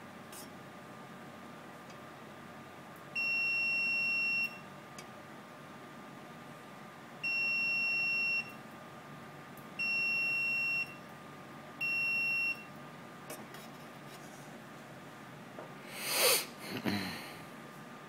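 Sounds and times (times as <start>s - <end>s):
high-pitched multimeter beeps: 3.2s - 4.6s, 7.2s - 8.6s, 9.8s - 11.0s, 11.8s - 12.7s.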